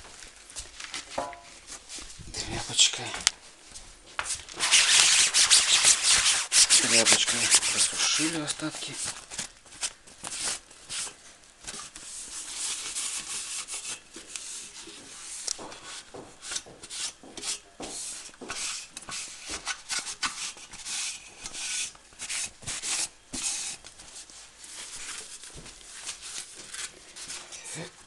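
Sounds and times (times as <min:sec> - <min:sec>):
cloth rubbing mesh filter: 0:04.6 - 0:08.4.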